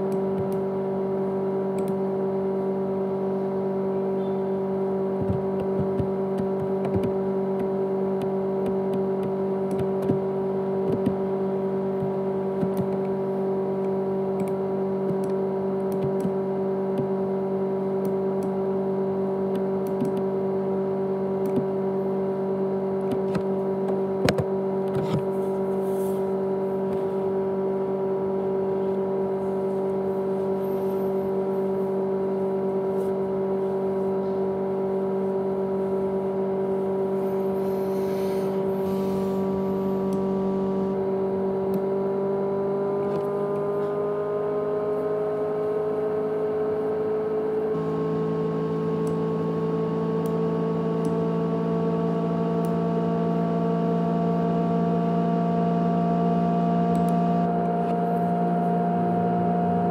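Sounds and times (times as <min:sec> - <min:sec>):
hard drive humming: 0:00.0 - 0:59.9
hard drive clicks: 0:00.1 - 0:00.6, 0:05.2 - 0:11.2, 0:12.0 - 0:13.2, 0:13.8 - 0:17.2, 0:23.0 - 0:25.3.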